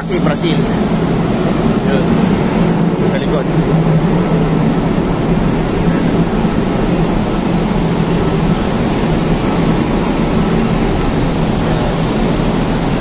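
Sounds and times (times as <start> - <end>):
ship machinery drone: 0.0 - 13.0.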